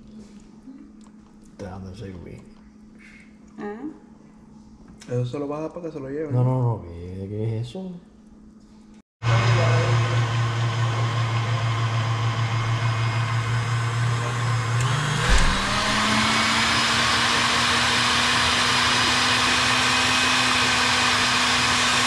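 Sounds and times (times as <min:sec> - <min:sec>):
small electric motor running: 0:13.2 - 0:22.0
brief thump: 0:15.2 - 0:16.1.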